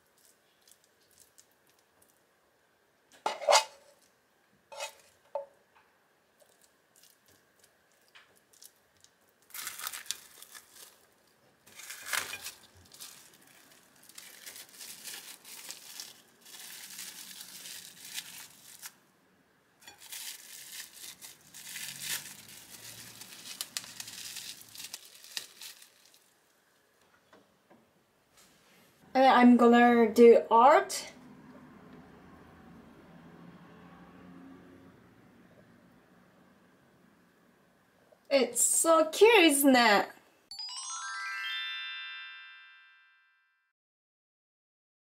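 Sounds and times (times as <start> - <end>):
cling film crinkling: 0.0 - 2.2, 6.4 - 19.0, 19.8 - 26.6.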